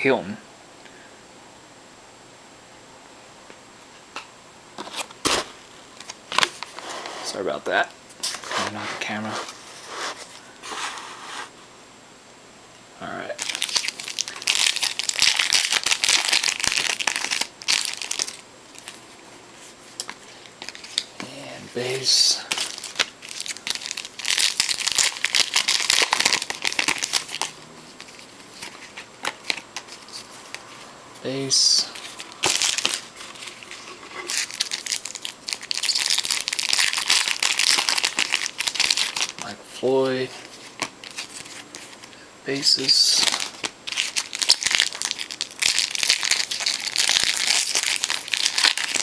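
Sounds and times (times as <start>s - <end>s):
wrapper crinkling and tearing: 13.3s - 19.1s, 20.0s - 39.6s, 40.3s - 42.1s, 42.8s - 49.0s.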